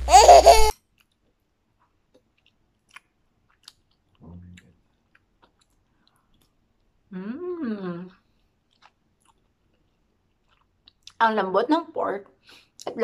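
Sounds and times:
soft chewing: 0.8 - 7.1, 8.1 - 11.2
closed-mouth hum: 4.2 - 4.7.

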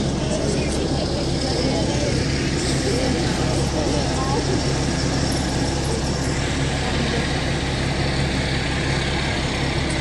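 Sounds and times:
fire truck engine idling: 0.0 - 10.0.

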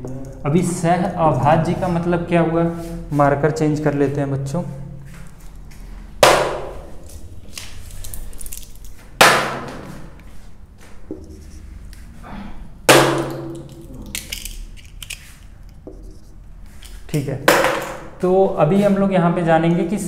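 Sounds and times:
sharp knocks ringing in room: 6.2 - 7.1, 9.2 - 10.2, 12.8 - 13.8, 17.4 - 18.2.

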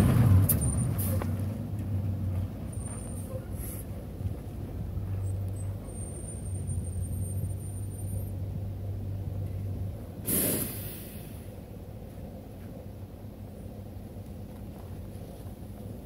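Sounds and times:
bus engine droning: 0.0 - 16.0
short loud hiss: 10.2 - 11.5.

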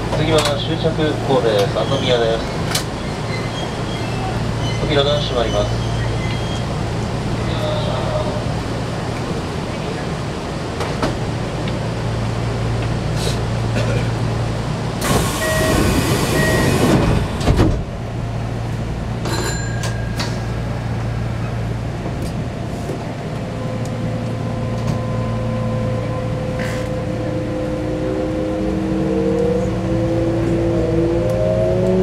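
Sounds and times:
electric train running hum: 0.0 - 32.0
traction motor whine: 15.0 - 17.5.

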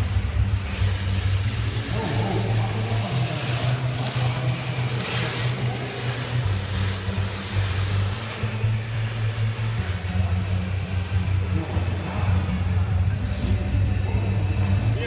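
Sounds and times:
low hum: 0.0 - 15.0.

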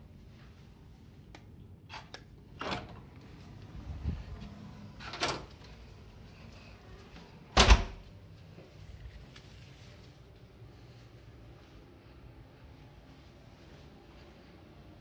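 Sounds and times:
heavy door thud: 7.5 - 8.0.

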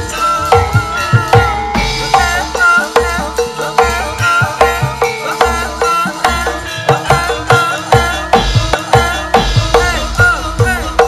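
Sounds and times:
bronze metallophones ringing: 0.0 - 11.0.

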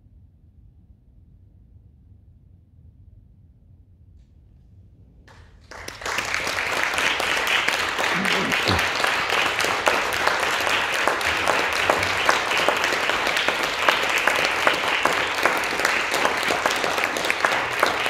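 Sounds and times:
audience applauding: 5.6 - 18.0.

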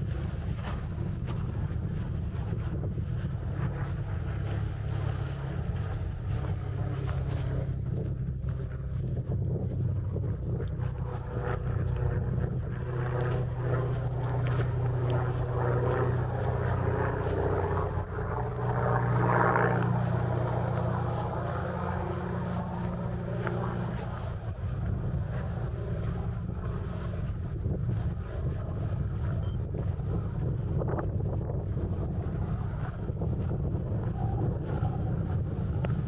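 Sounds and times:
footsteps crunching on icy snow: 0.0 - 9.0, 10.8 - 28.5
wind buffeting microphone: 0.0 - 36.0.

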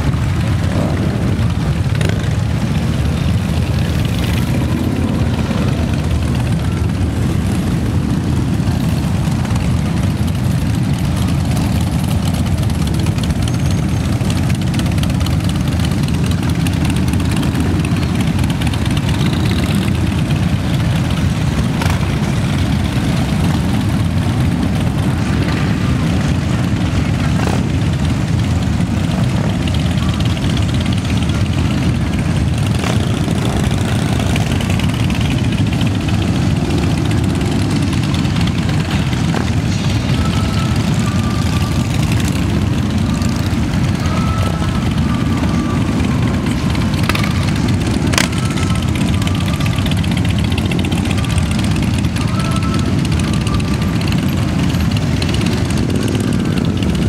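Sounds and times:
motorcycles running at low speed: 0.0 - 57.0.

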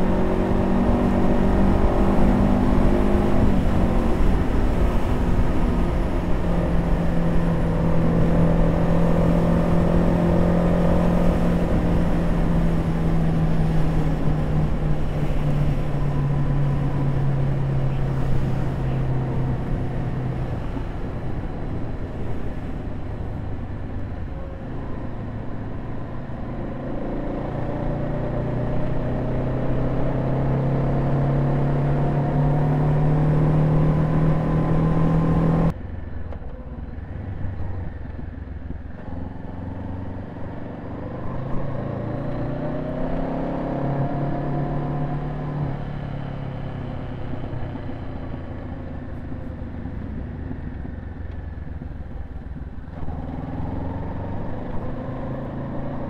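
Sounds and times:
motorcycle engine accelerating: 0.0 - 35.7, 36.4 - 56.0
wind noise: 0.0 - 35.8
road noise: 0.0 - 56.0.

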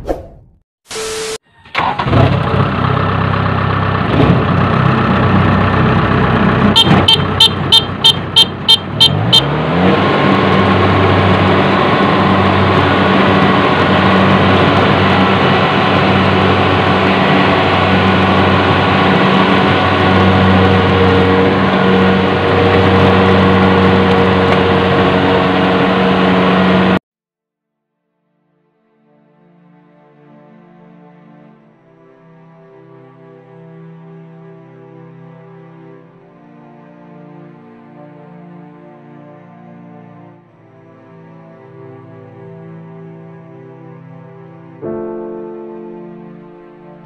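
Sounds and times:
harvester engine running: 1.7 - 27.0
short high beeps: 6.8 - 9.4.

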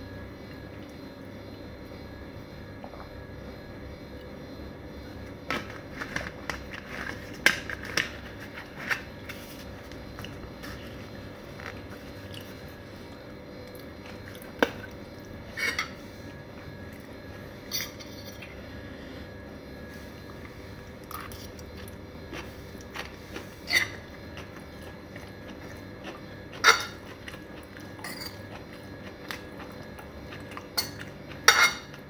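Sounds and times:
chewing noodles: 20.3 - 31.5.

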